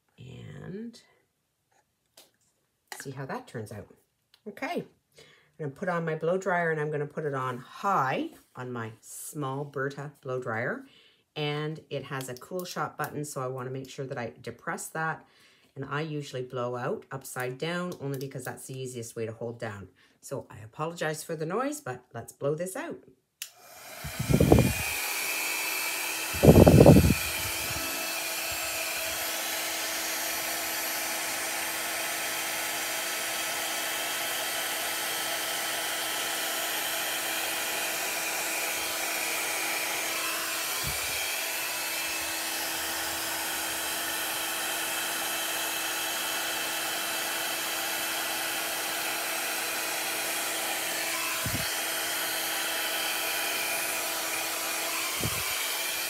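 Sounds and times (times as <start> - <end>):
blow dryer blowing air: 23.4 - 56.0.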